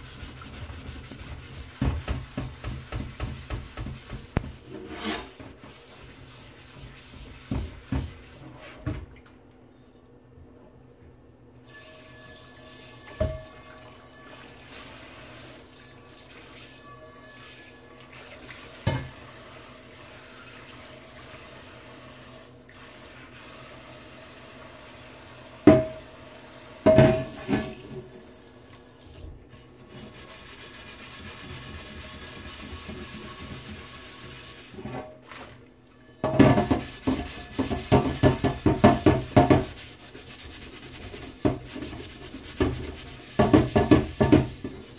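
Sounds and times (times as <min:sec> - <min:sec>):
pan scrubbed by hand: 0:00.0 - 0:08.9, 0:29.0 - 0:35.6, 0:36.2 - 0:44.9
pan knocking against sink: 0:01.7 - 0:04.7, 0:13.1 - 0:13.5, 0:25.6 - 0:26.0, 0:26.8 - 0:27.8, 0:36.2 - 0:39.8, 0:41.2 - 0:44.9
tap running into metal sink: 0:13.1 - 0:13.5.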